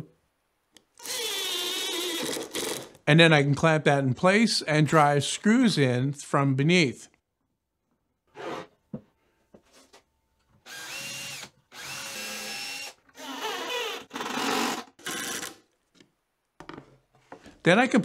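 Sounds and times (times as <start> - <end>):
drill driving screws into wood: 1.0 - 3.0, 10.6 - 15.6.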